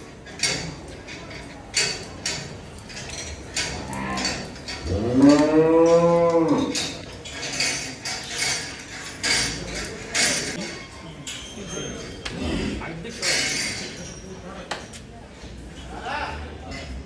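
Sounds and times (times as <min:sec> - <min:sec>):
sharp clinks and knocks: 0:00.2 - 0:12.3
bull mooing: 0:03.7 - 0:06.8.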